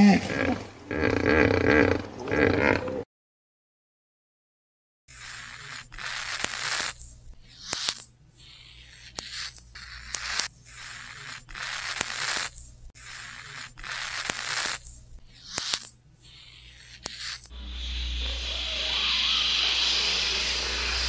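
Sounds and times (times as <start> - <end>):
hermit crab raspy stridulation: 5.1 - 21.0.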